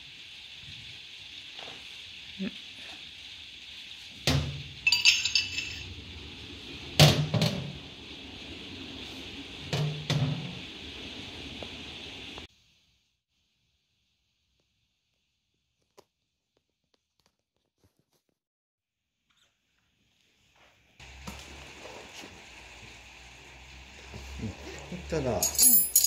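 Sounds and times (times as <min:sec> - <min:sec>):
steady hiss: 0:00.0 - 0:13.2, 0:20.0 - 0:25.7
steel tools knocking on metal lid: 0:04.9 - 0:05.9.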